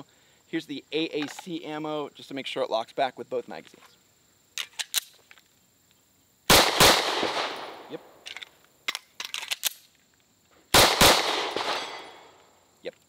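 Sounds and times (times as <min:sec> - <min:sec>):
pistol shots: 0:06.5 - 0:08.2, 0:10.7 - 0:12.3.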